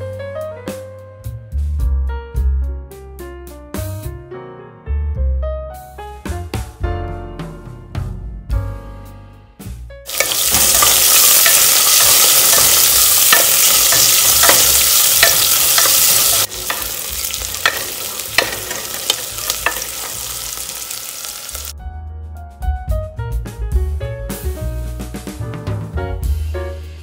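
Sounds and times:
background music: 5.6s - 27.0s
wooden spatula scraping pot: 10.1s - 20.8s
onion sizzling in hot oil: 10.1s - 21.7s.

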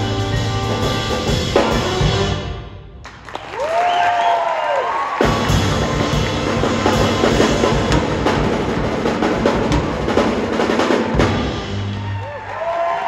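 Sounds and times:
driving drum kit: 0.0s - 2.9s, 5.1s - 12.4s
jazz band playing: 0.0s - 3.0s, 5.2s - 12.1s.

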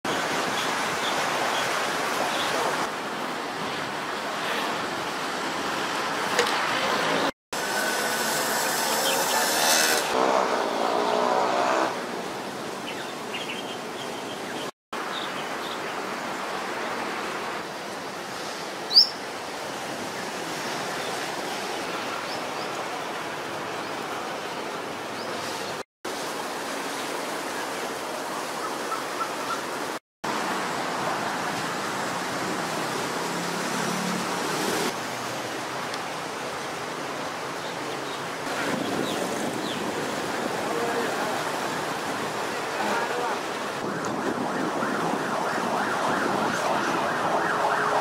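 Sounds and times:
outdoor ambient noise: 0.1s - 48.0s.

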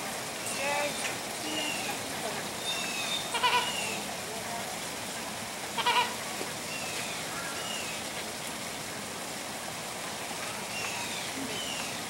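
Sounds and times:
flamingo calls: 2.6s - 4.1s, 5.7s - 8.0s.

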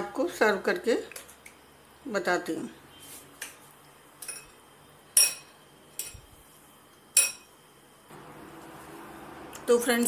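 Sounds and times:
metal spoon clinking glass bowl: 7.2s - 7.5s.

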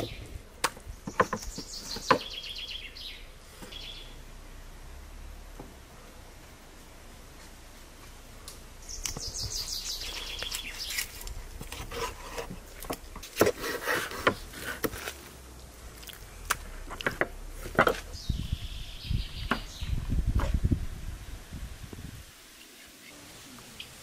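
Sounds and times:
bird chirping: 0.0s - 4.3s, 8.8s - 11.2s, 18.0s - 20.2s.

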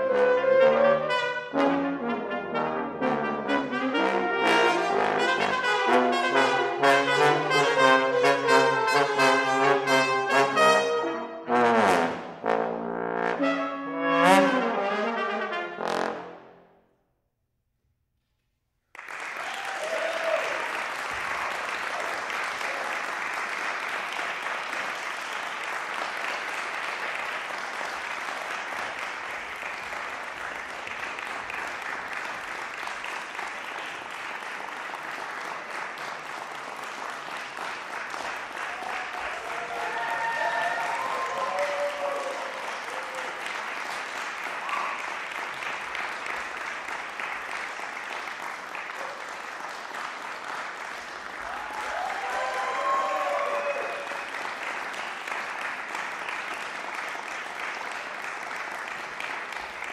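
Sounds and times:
audience applauding: 18.9s - 59.9s.

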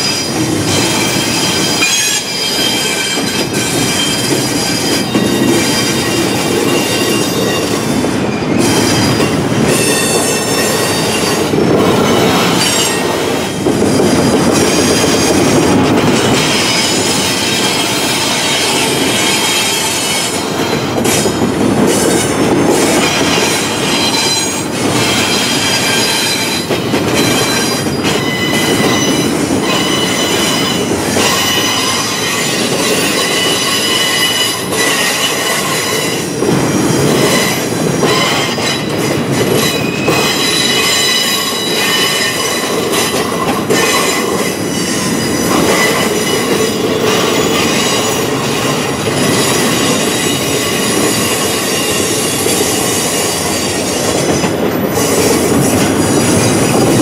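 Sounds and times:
high-pitched wheel squeal: 0.0s - 11.4s, 23.4s - 36.2s
rail clacks: 0.0s - 57.0s
train wheels rumbling on rails: 0.0s - 57.0s.

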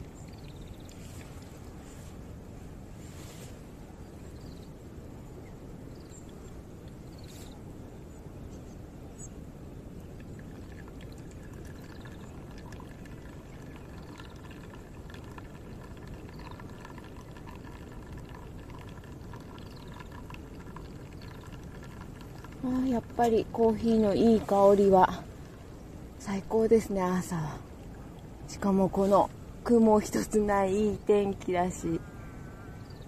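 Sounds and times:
water pouring onto coffee: 10.2s - 25.6s.

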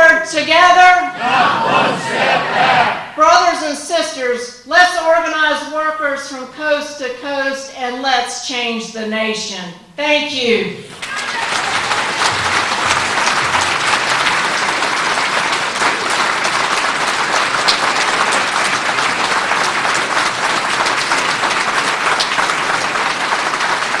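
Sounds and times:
audience applauding: 1.2s - 3.0s, 10.9s - 24.0s.

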